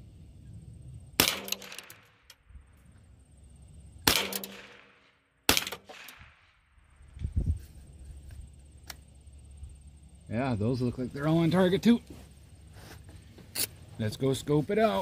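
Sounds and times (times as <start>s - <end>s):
rifle shots with echo: 1.2s - 2.3s, 4.0s - 6.8s.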